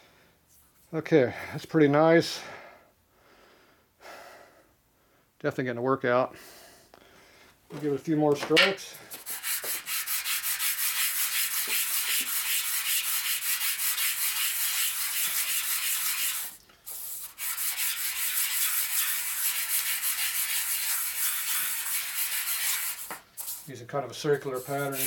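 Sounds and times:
metal part rubbed on sandpaper: 8.9 - 25.0.

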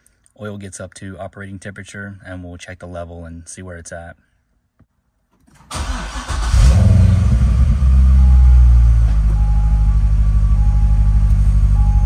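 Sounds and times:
car engine starting and idling: 5.6 - 12.0
faint beep: 8.2 - 12.0.

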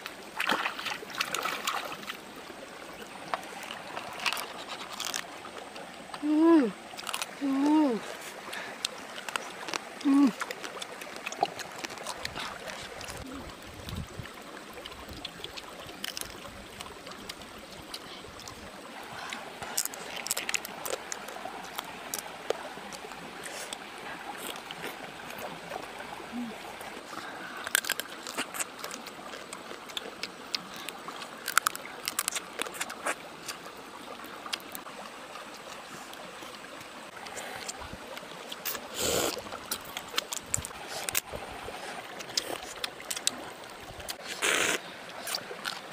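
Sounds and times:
stream flowing: 0.0 - 45.9
crab shells crunching: 3.6 - 5.4, 6.9 - 7.4, 19.6 - 23.0, 27.4 - 33.6, 39.7 - 41.3.

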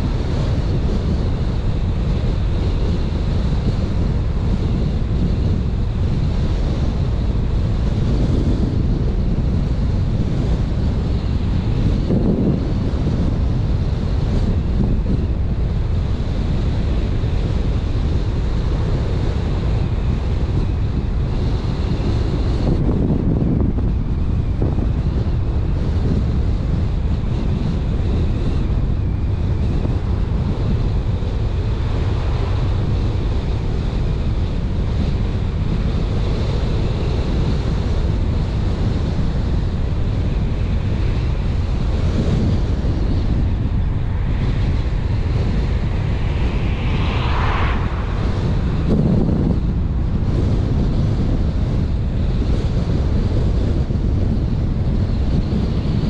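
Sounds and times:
car wind and tyre noise: 0.0 - 56.0
wind buffeting microphone: 0.0 - 56.0.

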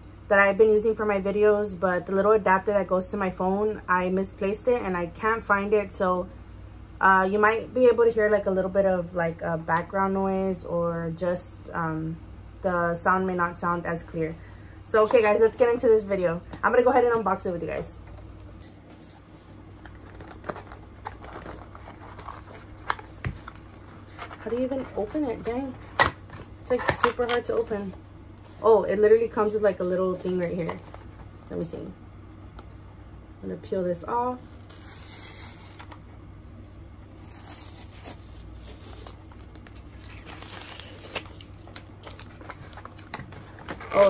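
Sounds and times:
low background hum: 0.0 - 44.0
tape tearing off cardboard: 34.4 - 36.0, 37.1 - 42.6.

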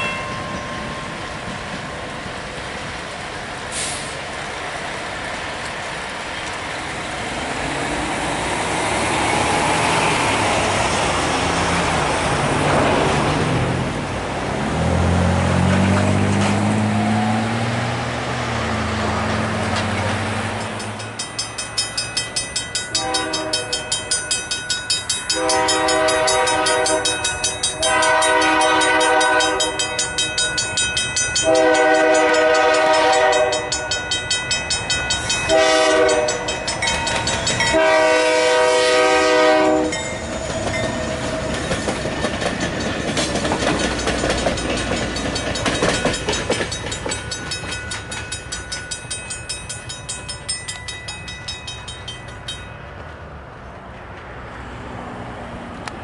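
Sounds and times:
crossing bell ringing: 0.0 - 2.0, 19.9 - 53.3
train engine and wheels rumbling: 0.0 - 56.0
locomotive air horn blasts: 22.9 - 23.9, 25.3 - 30.0, 31.4 - 33.9, 35.5 - 36.6, 37.6 - 40.0.

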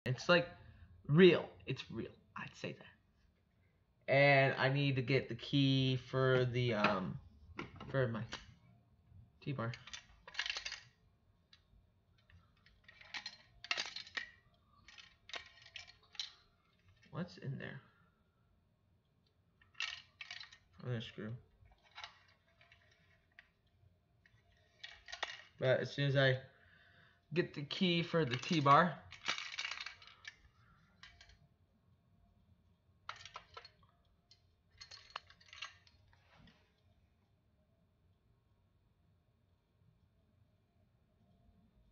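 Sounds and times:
plastic device clinking and rattling: 9.6 - 11.0, 11.6 - 17.1, 19.6 - 20.8, 21.6 - 25.6, 27.7 - 31.4, 33.1 - 33.9, 34.7 - 36.2
loose screw rattling inside: 9.7 - 10.8, 12.2 - 17.1, 28.1 - 31.4, 33.1 - 33.8, 34.7 - 36.0.

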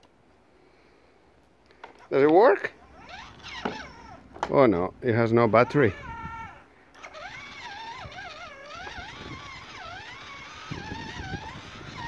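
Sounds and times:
electronic toy engine sound: 2.7 - 4.2, 5.5 - 12.0
wavering tone gliding up and down: 2.7 - 4.3, 5.2 - 12.0.

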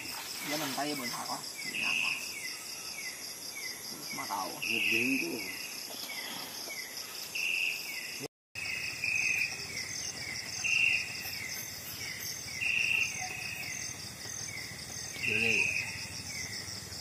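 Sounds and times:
insect chirping call: 0.0 - 17.0
insects trilling: 0.0 - 17.0.

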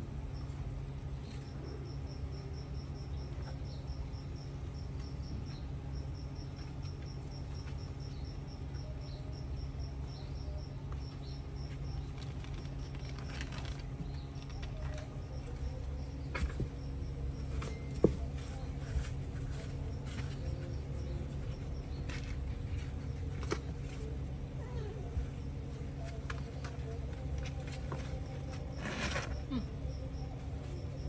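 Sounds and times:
cricket chirping: 0.0 - 31.0
scratchy rustle: 26.4 - 29.6.

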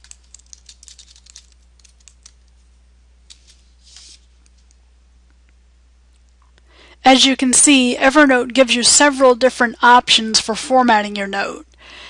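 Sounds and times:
typing on computer keyboard: 0.0 - 2.4.

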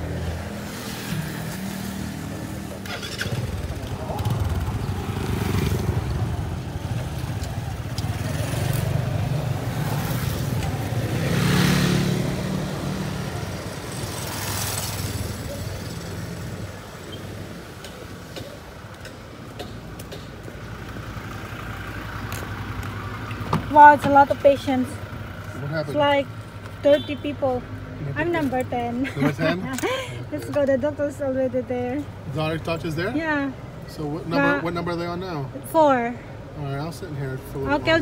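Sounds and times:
motorcycle riding past: 0.0 - 16.7
vehicles going by: 0.0 - 38.0.

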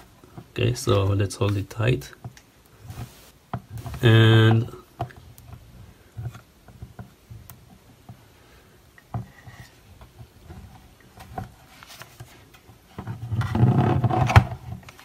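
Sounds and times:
light clicks and taps of plastic parts: 0.2 - 2.5.

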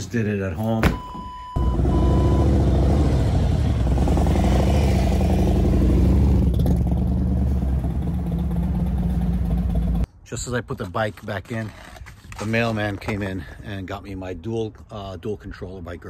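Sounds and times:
motorcycle engine running: 6.4 - 10.0.

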